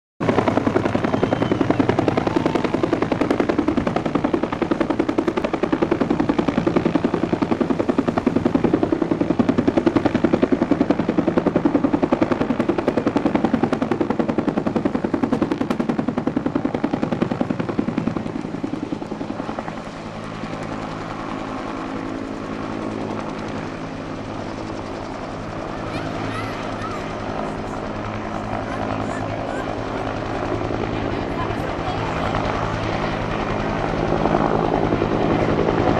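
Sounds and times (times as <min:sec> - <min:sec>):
helicopter rotor blade slap: 0:24.4 - 0:35.9.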